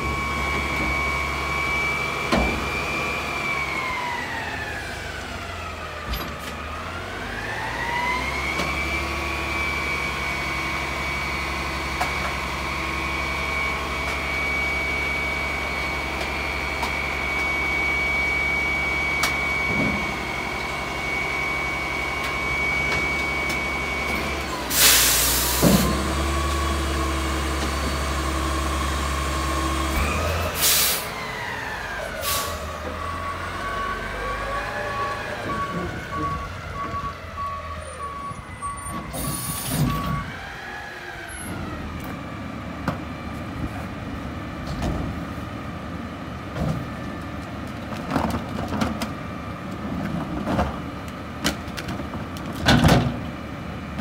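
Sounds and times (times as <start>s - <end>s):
air brake hisses: 24.7s - 25.9s, 30.6s - 31.1s.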